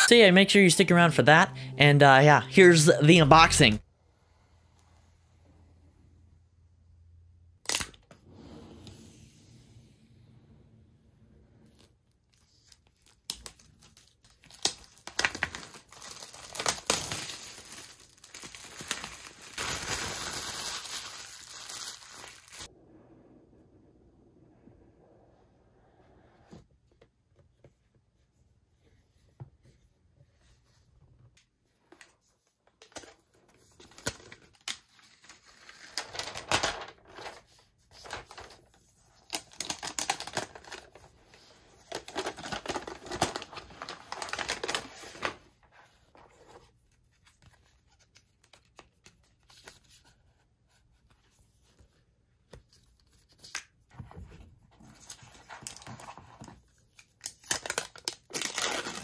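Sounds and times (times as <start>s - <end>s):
packaging crinkling and rustling: 12.3s - 22.7s, 41.8s - 45.4s, 55.0s - 59.0s.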